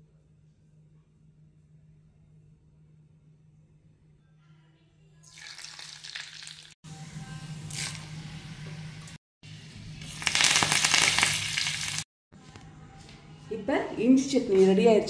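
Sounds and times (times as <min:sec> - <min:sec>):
hot oil sizzling in a pan: 0:05.2 - 0:06.8, 0:10.0 - 0:12.1.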